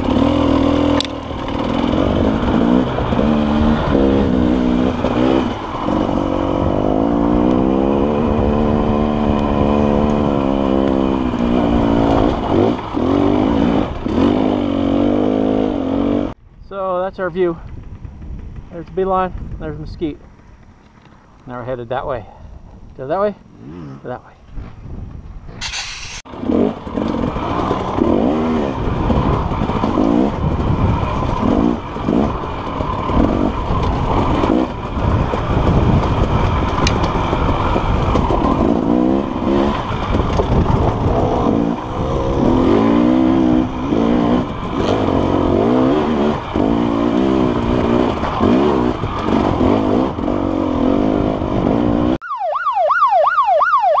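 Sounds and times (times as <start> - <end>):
wind rumbling on microphone: 0.0 - 14.7, 16.2 - 25.9, 26.7 - 52.2
dirt bike engine revving: 0.0 - 16.4, 23.3 - 24.2, 25.6 - 52.2
warbling electronic siren tone: 52.2 - 54.0.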